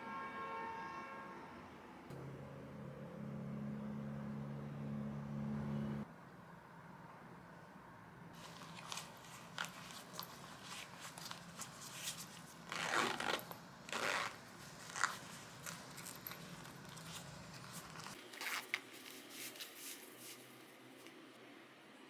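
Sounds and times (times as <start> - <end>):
fabric rustling: 8.4 - 21.3
zip pulls: 8.6 - 18.8.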